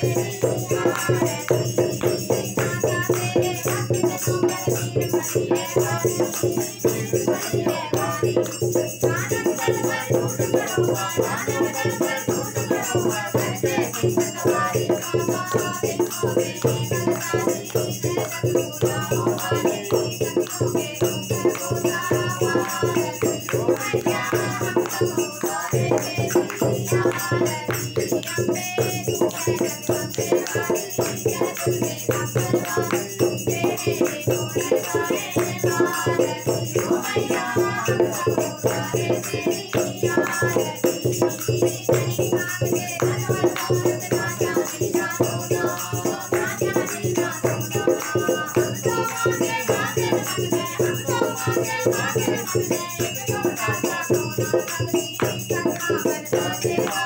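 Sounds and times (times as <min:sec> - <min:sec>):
hand drum rhythm: 0:00.0 - 0:57.0
woman and boys singing: 0:00.0 - 0:57.0.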